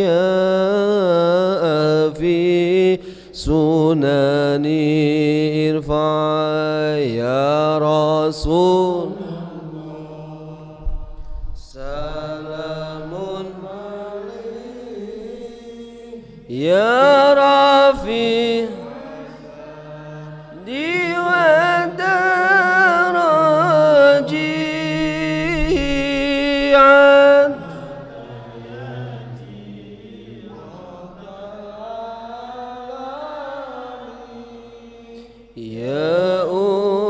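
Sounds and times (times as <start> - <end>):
men chanting into microphones: 0.0 - 37.0.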